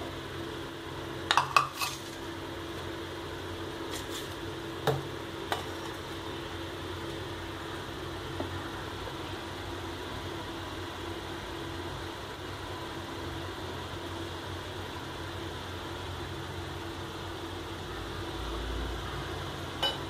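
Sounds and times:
pan clanking on metal grate: 0:01.3 - 0:02.1, 0:19.8 - 0:20.0.

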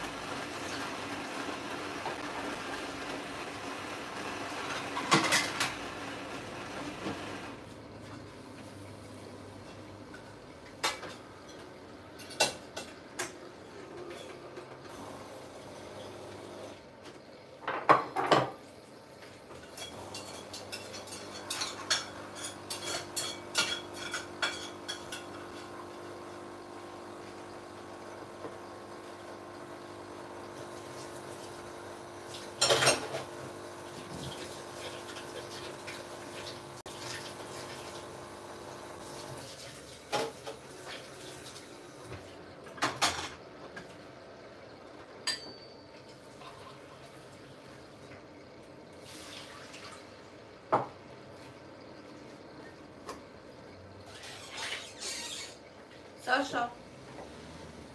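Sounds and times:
dishes clattering: 0:04.6 - 0:05.9, 0:10.1 - 0:14.8, 0:17.6 - 0:18.6, 0:19.5 - 0:25.8, 0:32.6 - 0:33.3, 0:42.7 - 0:44.0, 0:45.2 - 0:46.7
dishes and cutlery clinking: 0:19.6 - 0:25.8, 0:45.2 - 0:46.7.

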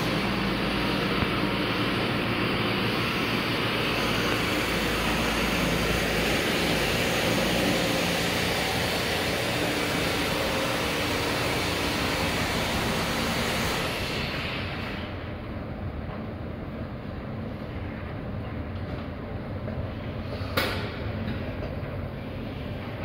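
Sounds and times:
escalator running: 0:00.0 - 0:15.4.

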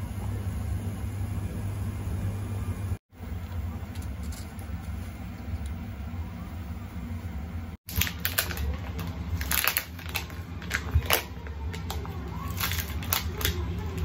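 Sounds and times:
low steady hum: 0:00.0 - 0:14.0
plastic wrapping crinkling: 0:07.9 - 0:14.0.

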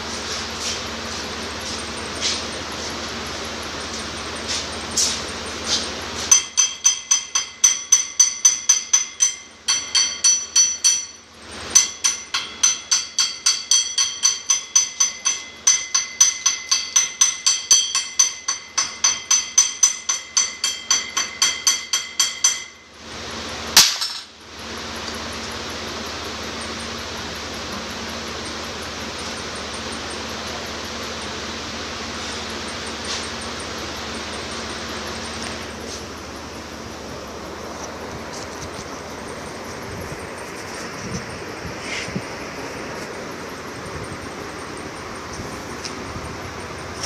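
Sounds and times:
steady low hum: 0:00.0 - 0:47.0
hammer striking metal: 0:06.3 - 0:22.9, 0:23.8 - 0:24.3.

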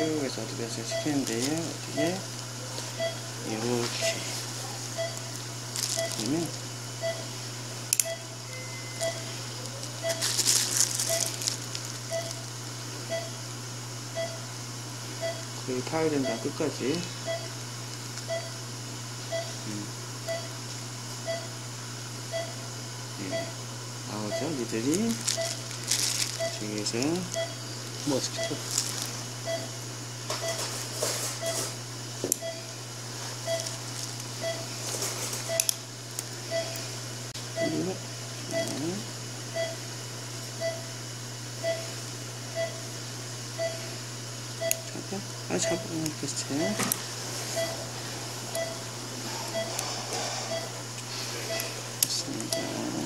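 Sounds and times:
patient monitor beeps: 0:00.0 - 0:02.3, 0:03.0 - 0:04.4, 0:05.0 - 0:07.4, 0:08.0 - 0:09.4, 0:10.0 - 0:10.3, 0:11.0 - 0:11.4, 0:12.1 - 0:12.5, 0:13.1 - 0:13.4, 0:14.1 - 0:14.5, 0:15.2 - 0:17.6, 0:18.3 - 0:18.6, 0:19.3 - 0:20.6, 0:21.2 - 0:21.6, 0:22.3 - 0:25.7, 0:26.4 - 0:30.7, 0:31.3 - 0:31.8, 0:32.4 - 0:32.8, 0:33.4 - 0:33.8, 0:34.4 - 0:34.7, 0:35.4 - 0:35.8, 0:36.5 - 0:36.9, 0:37.5 - 0:39.8, 0:40.6 - 0:40.9, 0:41.6 - 0:41.9, 0:42.5 - 0:42.9, 0:43.6 - 0:43.9, 0:44.6 - 0:47.9, 0:48.5 - 0:51.8, 0:52.4 - 0:53.0
steady low hum: 0:00.0 - 0:53.0
plastic sleeve crinkling: 0:01.2 - 0:01.7, 0:05.7 - 0:06.3, 0:09.7 - 0:12.1, 0:24.8 - 0:29.3, 0:33.6 - 0:34.3.

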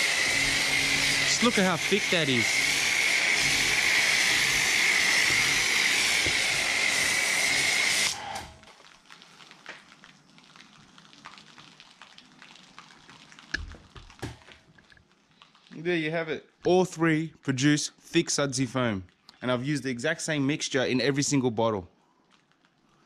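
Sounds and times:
pressure washer spraying: 0:00.0 - 0:08.6.

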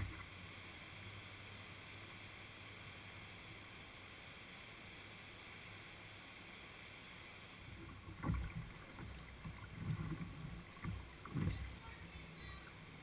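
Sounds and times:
low thumps and splashes: 0:00.0 - 0:00.4, 0:07.7 - 0:12.4
shallow river current rushing: 0:00.0 - 0:13.0.

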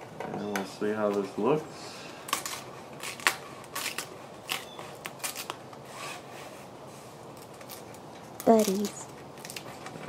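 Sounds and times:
plastic film crackling when peeled: 0:02.2 - 0:05.8, 0:07.2 - 0:10.0.

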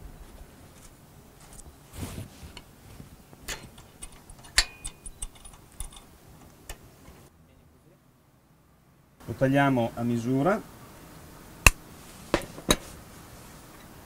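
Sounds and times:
metal wire clicking: 0:03.5 - 0:06.1.

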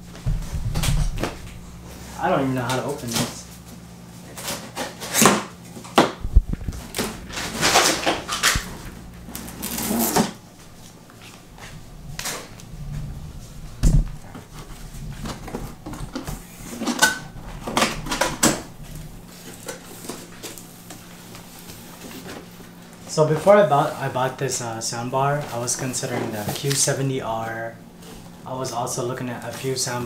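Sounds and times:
dull thumps: 0:00.0 - 0:02.1, 0:11.4 - 0:19.4
cardboard scraping and rubbing: 0:06.3 - 0:22.5.

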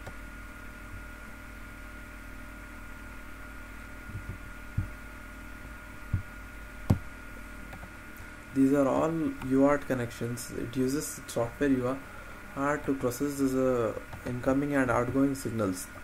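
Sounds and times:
low electrical hum: 0:00.0 - 0:16.0
thin high whine: 0:08.1 - 0:16.0.

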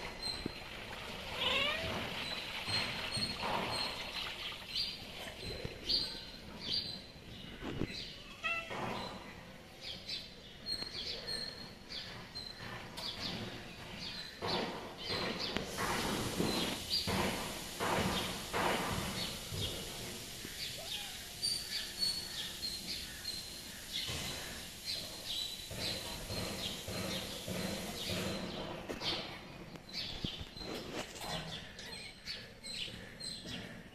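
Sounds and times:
small birds chirping: 0:00.0 - 0:33.9
steady hiss: 0:14.5 - 0:31.7.

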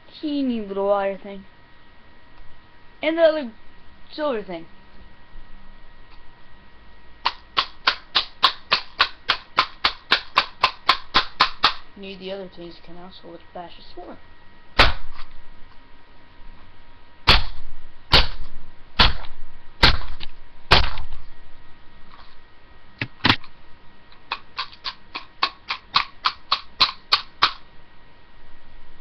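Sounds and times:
hammer striking plastic: 0:07.3 - 0:11.8.

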